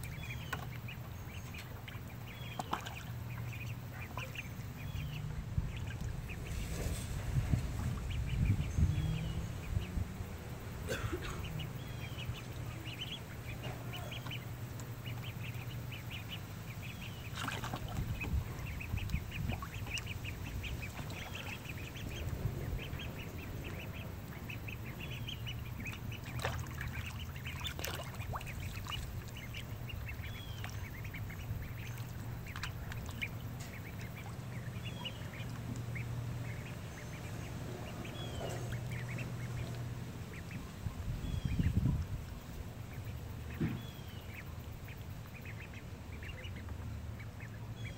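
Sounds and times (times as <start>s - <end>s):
ducks calling: 0.0s - 47.9s
steady low hum: 0.0s - 47.9s.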